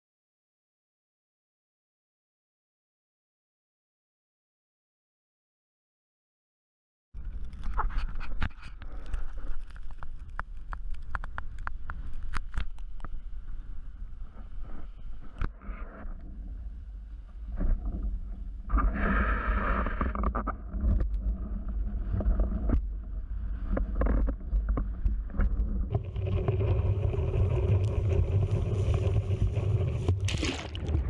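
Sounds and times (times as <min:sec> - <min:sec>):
board skimming over choppy water: 0:13.1 - 0:31.0
rush of water: 0:25.9 - 0:31.0
water splashes: 0:25.9 - 0:31.0.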